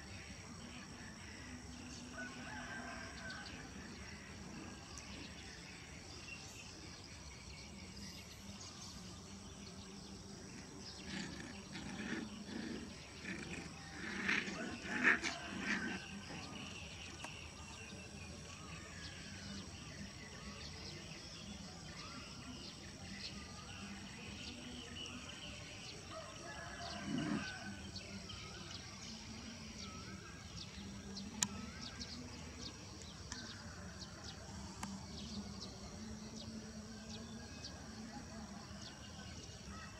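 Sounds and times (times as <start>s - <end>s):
insects trilling: 0.0s - 39.9s
dogs whining and grunting: 10.3s - 17.2s, 26.4s - 28.3s.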